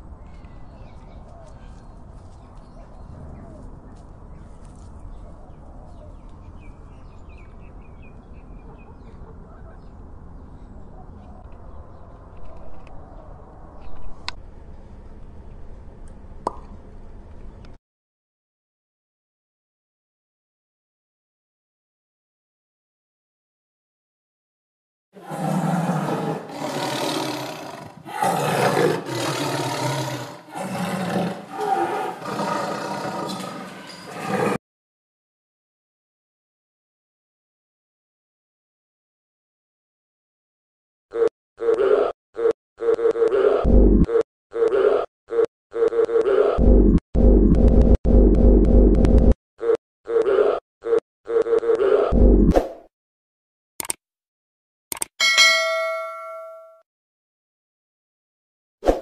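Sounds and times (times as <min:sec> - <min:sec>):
big cat roaring: 0:25.2 - 0:34.6.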